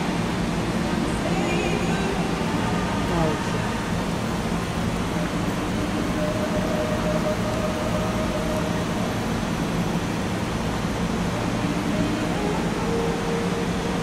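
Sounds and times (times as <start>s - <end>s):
arena ventilation rushing: 0.0s - 14.0s.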